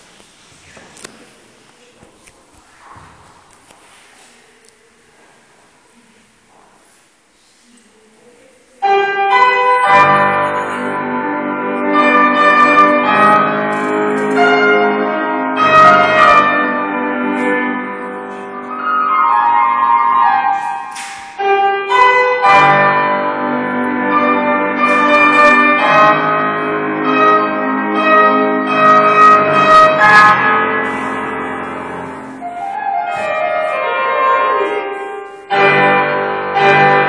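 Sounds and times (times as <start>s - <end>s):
grand piano accompaniment: 8.8s - 37.0s.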